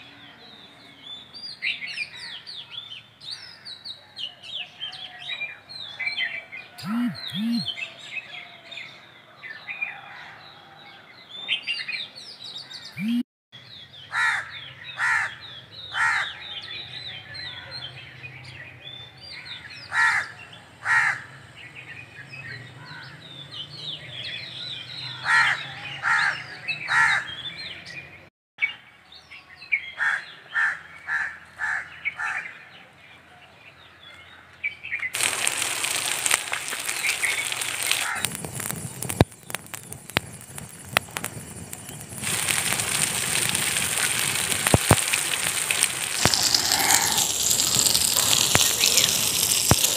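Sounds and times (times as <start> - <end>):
birds chirping: 6.7 - 8.0, 12.5 - 17.2, 34.8 - 49.9
birds harsh calls: 14.0 - 16.6, 19.5 - 21.4
sharp pops: 35.2 - 49.9
wood fire crackling: 35.2 - 49.9.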